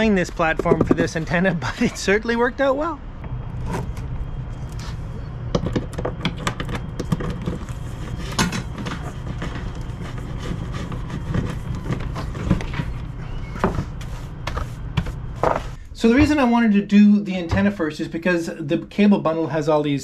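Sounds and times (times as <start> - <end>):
cables tapping and rubbing on wood: 5.6 - 15.6.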